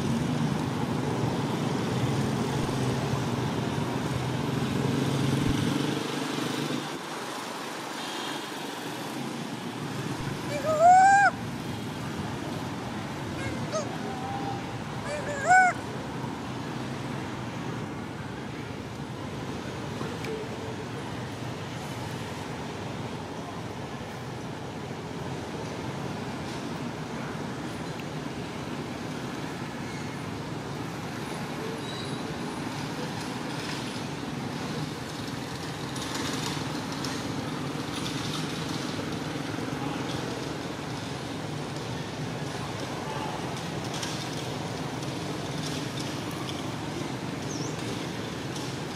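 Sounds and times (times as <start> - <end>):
baby monkey crying: 10.5 - 11.4, 13.4 - 15.8.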